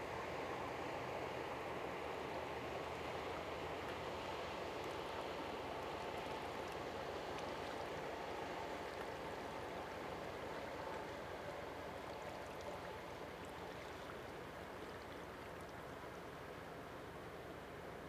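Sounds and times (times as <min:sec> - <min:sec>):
boat engine drone: 0:00.0 - 0:18.0
water rushing from boat wake: 0:00.0 - 0:18.0.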